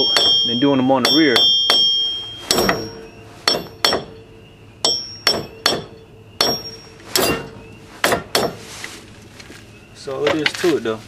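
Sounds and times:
metal tapping on wheel hub: 0:00.0 - 0:08.6.

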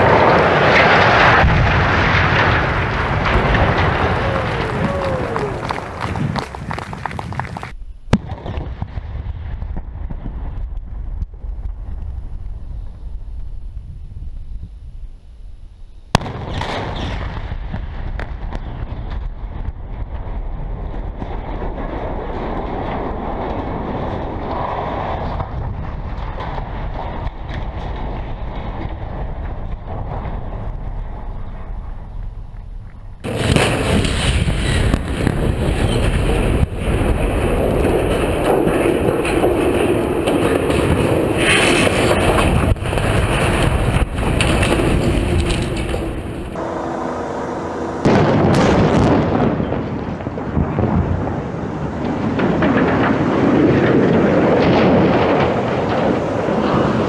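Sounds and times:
wind buffeting microphone: 0:00.0 - 0:07.8, 0:17.2 - 0:57.0
rumble of tower toppling: 0:00.0 - 0:14.4, 0:16.1 - 0:57.0
clicks of flying debris: 0:37.3 - 0:46.6.

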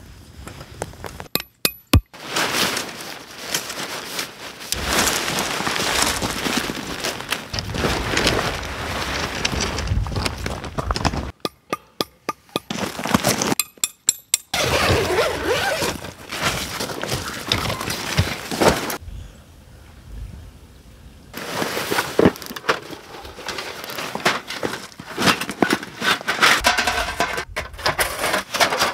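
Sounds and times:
tent fabric rustling: 0:02.1 - 0:10.7, 0:14.5 - 0:19.0, 0:21.4 - 0:26.6.

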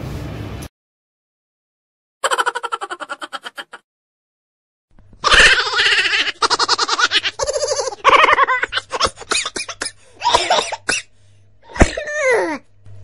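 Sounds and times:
person laughing: 0:02.2 - 0:03.8, 0:05.2 - 0:10.7.

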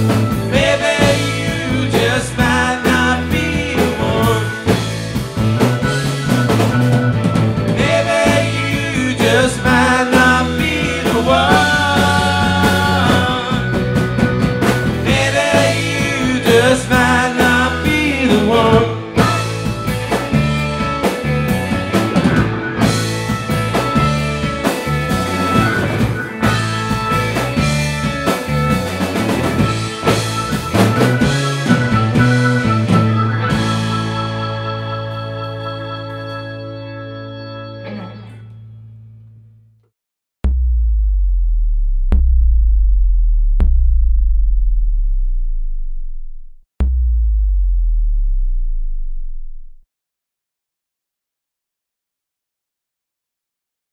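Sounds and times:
drum kit: 0:00.0 - 0:36.4, 0:40.4 - 0:49.8
electric guitars: 0:00.0 - 0:39.4.

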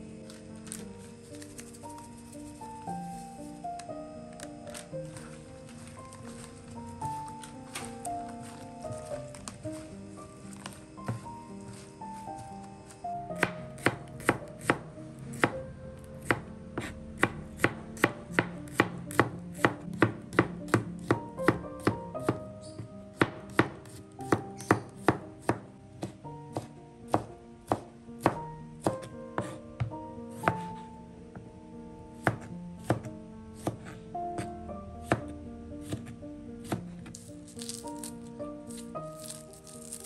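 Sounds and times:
knife chopping on cutting board: 0:13.4 - 0:14.8, 0:15.4 - 0:15.6, 0:16.2 - 0:30.8, 0:32.2 - 0:38.1.

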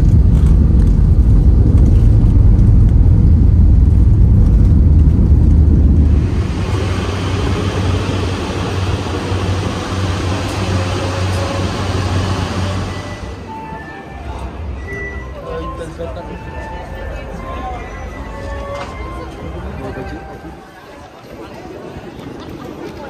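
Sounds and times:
airliner cabin rumble: 0:00.0 - 0:13.5.

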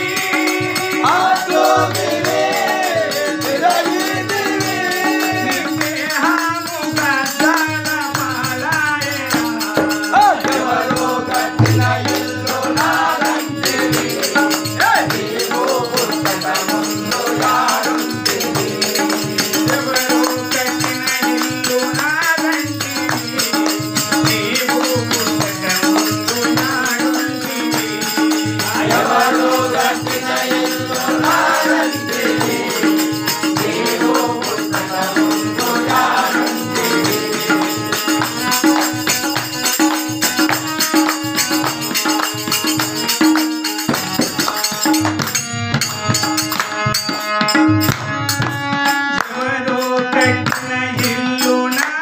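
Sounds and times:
man singing: 0:00.0 - 0:43.4, 0:48.8 - 0:52.0
harmonium: 0:00.0 - 0:52.0
jingling hand percussion: 0:00.0 - 0:52.0
hand-clapping: 0:37.5 - 0:49.6, 0:50.5 - 0:50.7, 0:51.8 - 0:52.0.

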